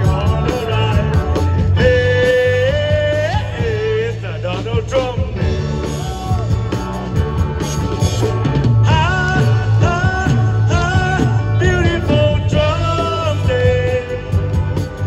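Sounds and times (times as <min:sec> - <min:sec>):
steady bass line: 0:00.0 - 0:15.0.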